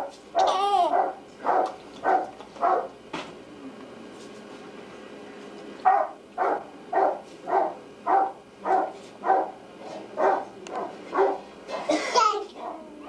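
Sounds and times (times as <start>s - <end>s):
dog barking: 0.0s - 3.0s, 5.8s - 9.6s, 10.2s - 11.9s.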